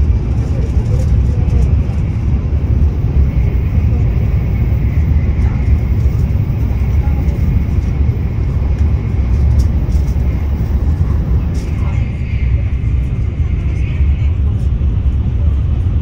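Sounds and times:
train cabin low rumble: 0.0 - 16.0.

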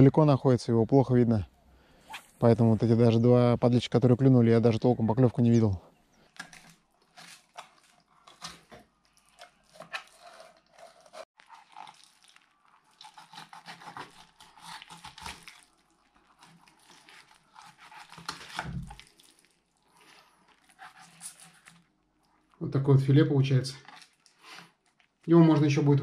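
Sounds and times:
knife scraping fish: 6.4 - 11.9, 12.9 - 18.9, 20.5 - 21.9.

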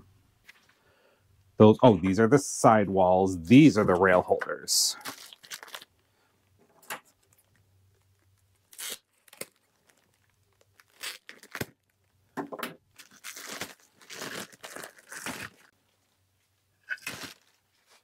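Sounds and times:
plastic bag tearing and crinkling: 5.0 - 6.0, 7.5 - 12.1, 13.0 - 15.7, 16.8 - 18.0.

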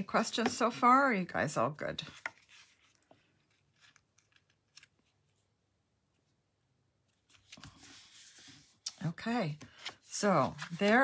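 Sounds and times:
card stock rustling: 9.5 - 11.0.

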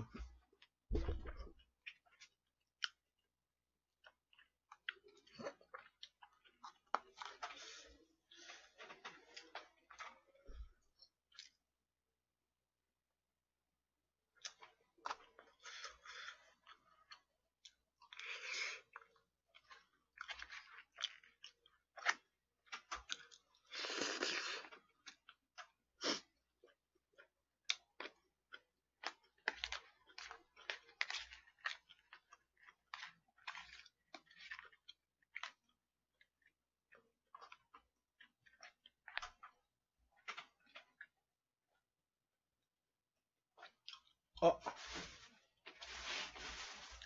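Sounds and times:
person chewing: 1.2 - 3.2, 4.0 - 10.2, 14.4 - 41.3.

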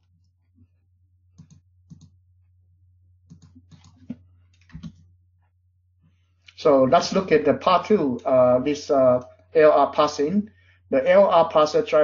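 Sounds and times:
computer mouse clicks: 1.3 - 2.2, 3.2 - 5.1.

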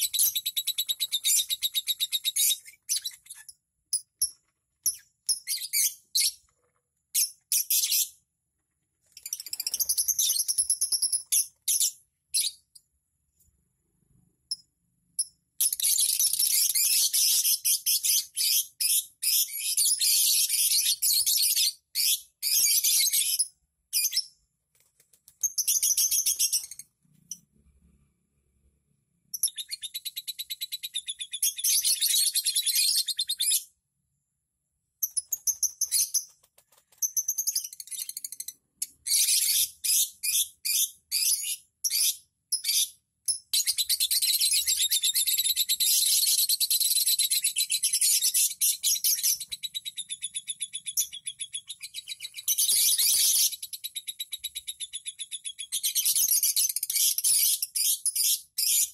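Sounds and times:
lovebirds chirping: 0.0 - 8.2, 43.6 - 58.9.

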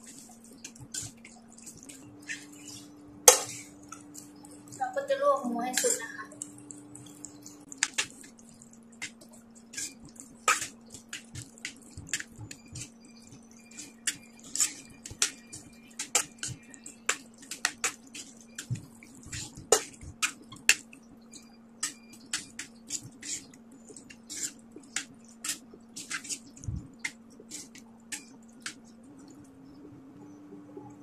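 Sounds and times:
faint steady hum: 0.0 - 31.0
metal spoon scraping steel pan: 24.3 - 28.3.

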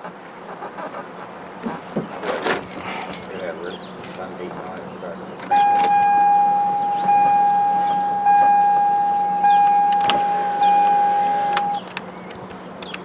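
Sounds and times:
car warning buzzer: 5.4 - 12.0
sharp clicks: 9.9 - 13.0.

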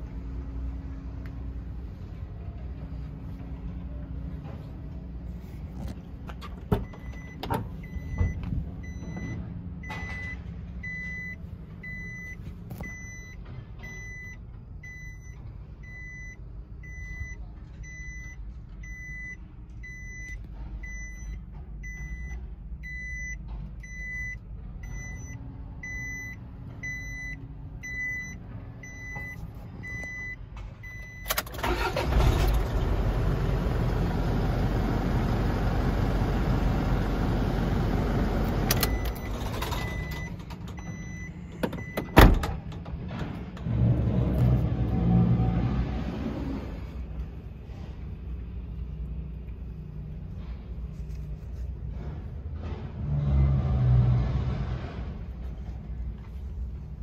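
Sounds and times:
low steady rumble: 0.0 - 57.0
electronic warning beeps: 6.8 - 32.0, 38.7 - 42.4.

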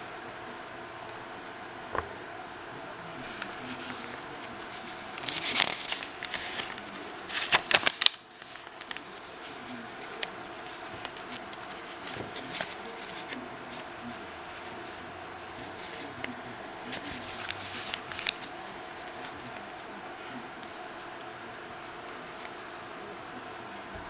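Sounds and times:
paper pages crinkling and rustling: 3.2 - 19.7.

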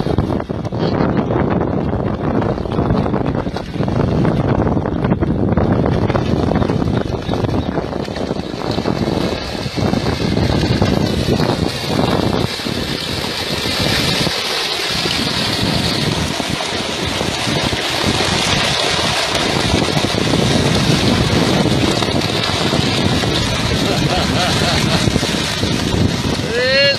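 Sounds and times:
wind on microphone: 0.0 - 26.9.

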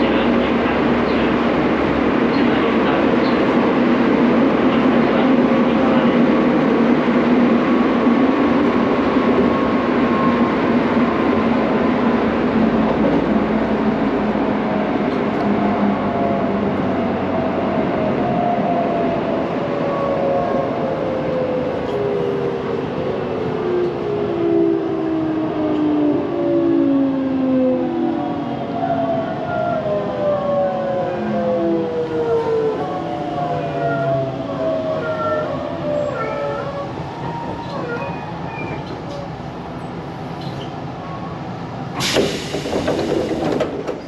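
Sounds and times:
train wheels rumbling on track: 0.0 - 24.2, 33.8 - 44.0.

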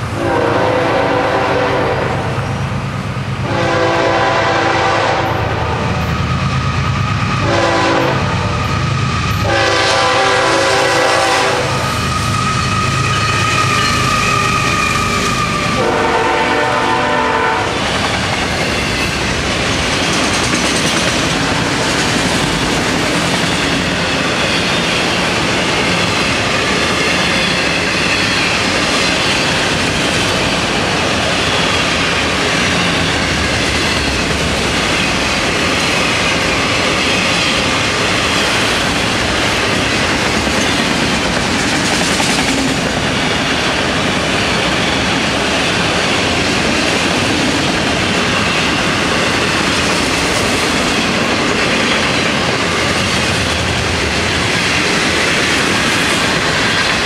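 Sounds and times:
train wheels rumbling on rails: 0.0 - 57.0
locomotive horn: 0.2 - 2.5, 3.4 - 6.2, 7.4 - 8.7, 9.4 - 17.9
clickety-clack over rail joints: 17.8 - 57.0.

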